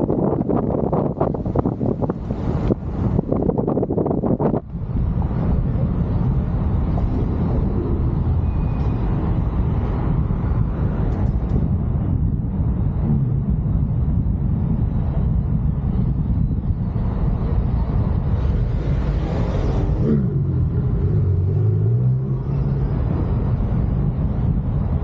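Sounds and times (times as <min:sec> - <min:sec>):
car driving rumble: 0:00.0 - 0:25.0
wind and road noise: 0:00.0 - 0:25.0
engine hum falling in pitch: 0:05.7 - 0:12.2, 0:18.4 - 0:24.5.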